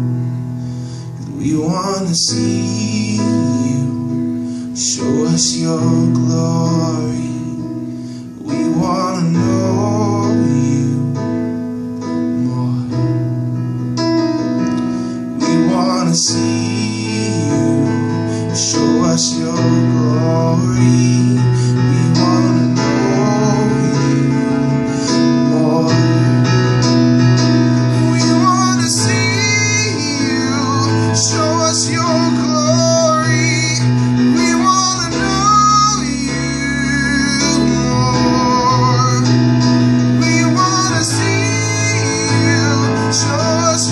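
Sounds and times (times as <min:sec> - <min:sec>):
man singing: 0:01.2 - 0:11.4, 0:12.0 - 0:13.3, 0:15.3 - 0:43.9
electronic keyboard chords: 0:17.8 - 0:43.9.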